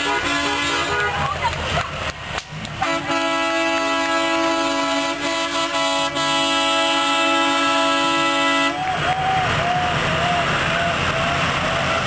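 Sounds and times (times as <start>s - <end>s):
truck air horn blast: 0.0s - 1.4s, 2.8s - 9.0s.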